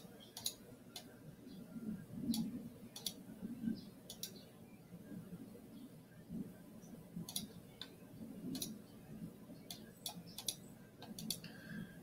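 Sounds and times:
computer mouse clicking: 0:00.0 - 0:01.1, 0:02.3 - 0:03.2, 0:04.0 - 0:04.4, 0:07.2 - 0:08.8, 0:09.6 - 0:11.5.

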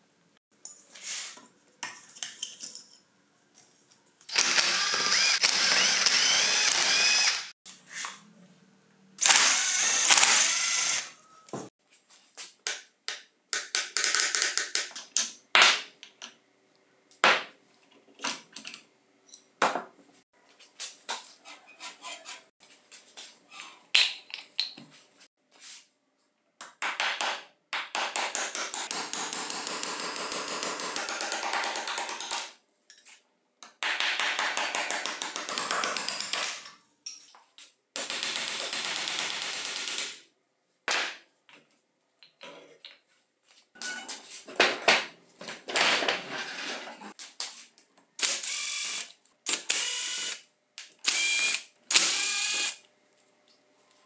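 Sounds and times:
power tool running: 0:04.3 - 0:07.6, 0:09.2 - 0:11.1, 0:48.2 - 0:50.4, 0:51.0 - 0:52.8.

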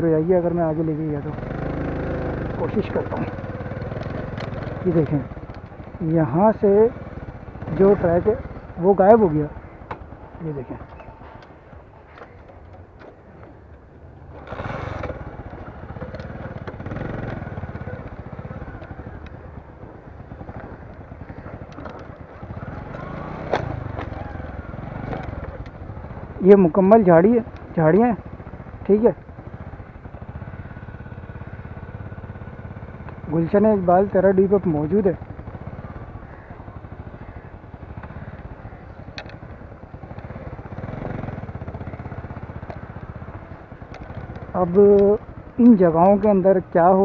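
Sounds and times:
motorcycle engine running: 0:00.0 - 0:47.0.

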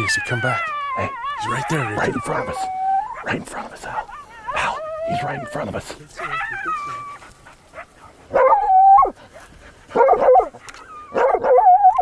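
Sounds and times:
dog bark-whines: 0:00.0 - 0:05.5, 0:07.8 - 0:09.1, 0:10.0 - 0:12.0.

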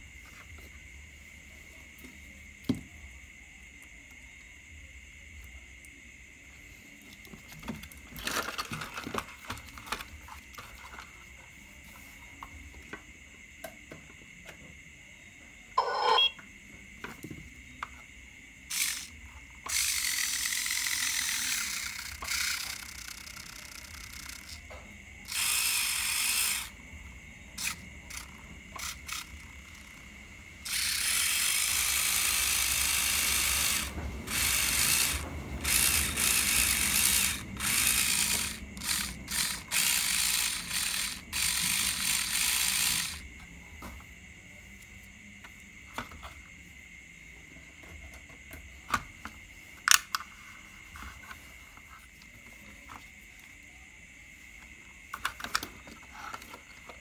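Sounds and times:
toy truck motor gear whir: 0:07.3 - 0:11.2, 0:15.8 - 0:16.3, 0:18.7 - 0:26.8, 0:27.5 - 0:43.4, 0:49.8 - 0:50.3, 0:55.1 - 0:57.0.

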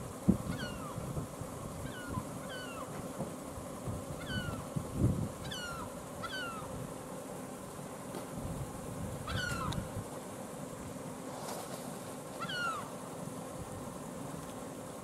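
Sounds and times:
gulls calling: 0:00.3 - 0:07.4, 0:08.9 - 0:10.0, 0:12.2 - 0:13.2.

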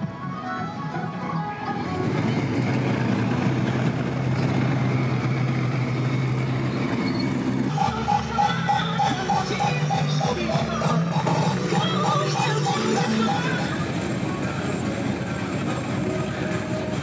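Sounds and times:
music: 0:00.0 - 0:04.1, 0:07.7 - 0:17.0
road noise: 0:00.0 - 0:17.0.

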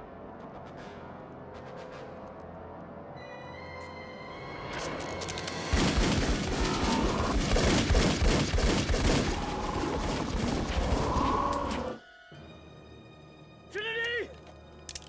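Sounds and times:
rapid pistol fire: 0:05.7 - 0:10.8.

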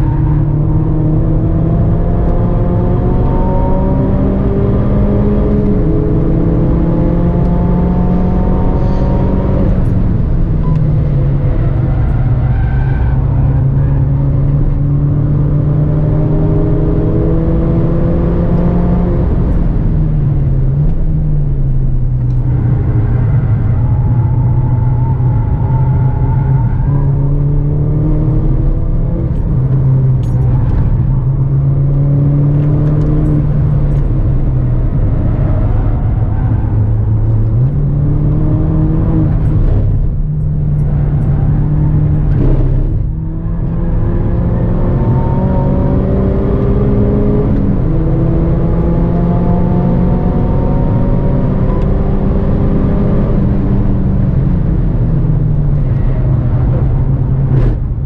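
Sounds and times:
car engine accelerating: 0:00.0 - 0:58.0
road and wind noise: 0:00.0 - 0:58.0.

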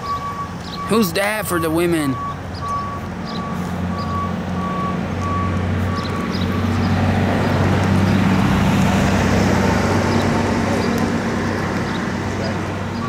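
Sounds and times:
reversing alarm beep: 0:00.0 - 0:06.8
large vehicle engine rumble: 0:00.0 - 0:13.0.

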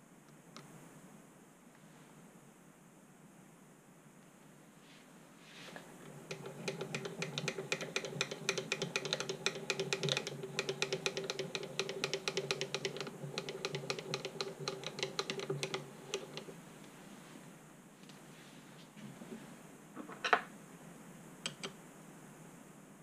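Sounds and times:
mill handwheel clicking: 0:05.8 - 0:16.6.

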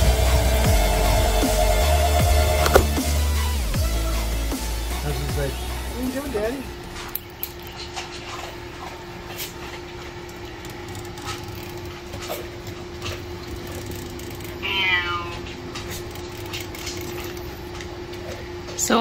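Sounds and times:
cat meowing: 0:14.6 - 0:15.6.

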